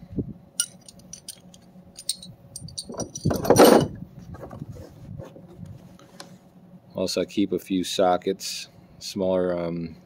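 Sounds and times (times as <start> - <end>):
metal tools clinking: 0.6 - 3.9.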